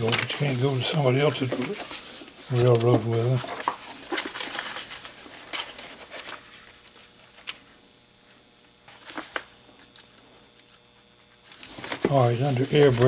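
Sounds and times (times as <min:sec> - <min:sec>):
book pages flipping: 0:00.0 - 0:07.6, 0:08.9 - 0:13.0.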